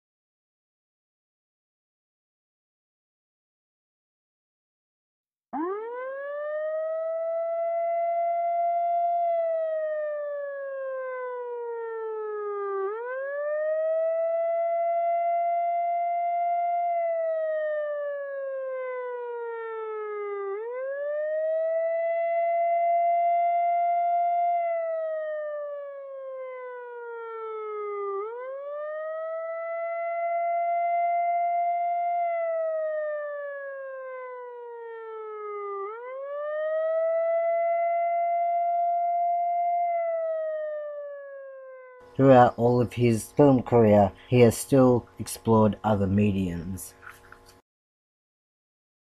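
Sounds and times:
siren wail: 5.6s - 45.2s.

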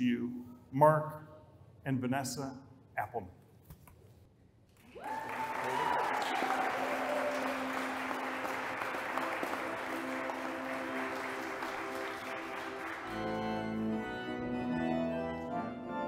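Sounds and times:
congregation applauding: 4.8s - 15.5s
organ chords: 6.7s - 16.0s.

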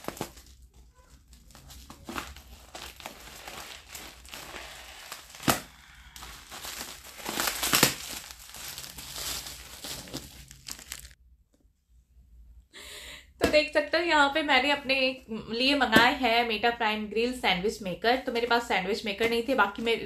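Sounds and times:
bubble wrap crinkling: 0.0s - 11.2s
bubble wrap tearing: 0.0s - 11.2s.

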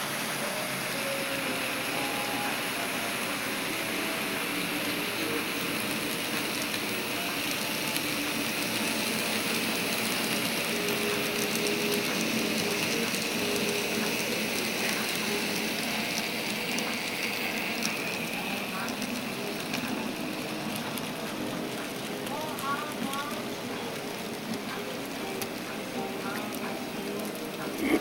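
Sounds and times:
faint locomotive motor hum: 0.0s - 28.0s.

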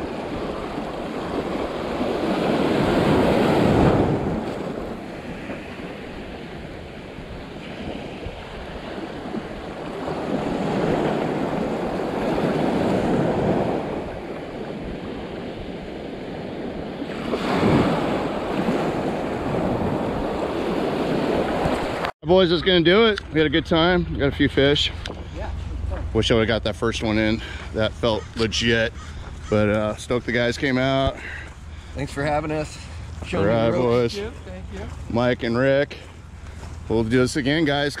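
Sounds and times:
ocean surf breaking: 0.0s - 22.1s
wind buffeting microphone: 0.0s - 22.1s.

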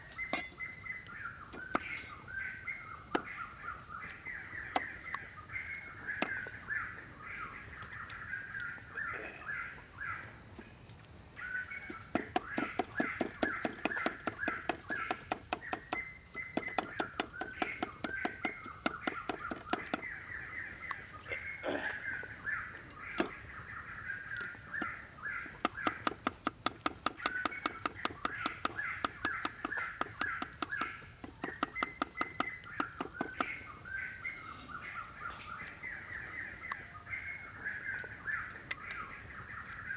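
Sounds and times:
birds chirping: 0.0s - 39.9s
cleaver chopping on wooden block: 11.9s - 20.1s, 25.6s - 33.6s.

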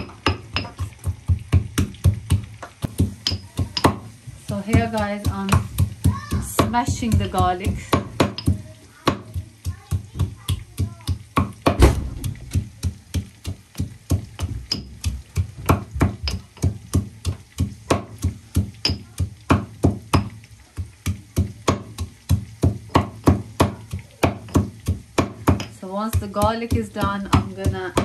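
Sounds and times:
garlic being pounded: 0.0s - 28.0s.

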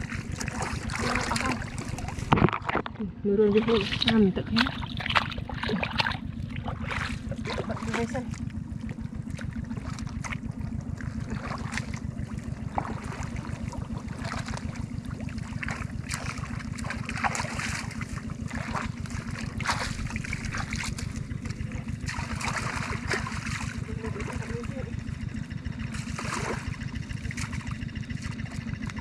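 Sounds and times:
water rushing and splashing: 0.0s - 2.7s, 3.7s - 8.4s, 11.0s - 24.7s
steady low rumble: 0.0s - 29.0s.

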